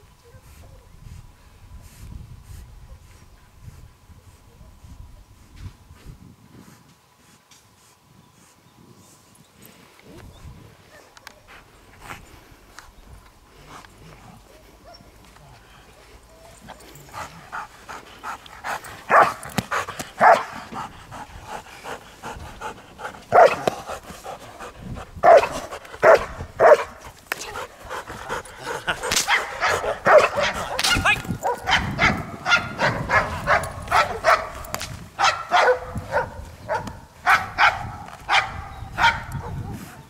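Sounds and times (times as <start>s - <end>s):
dog barking: 19.1s - 19.4s, 20.2s - 20.5s, 23.3s - 23.7s, 25.2s - 27.0s, 29.2s - 34.6s, 35.2s - 39.8s.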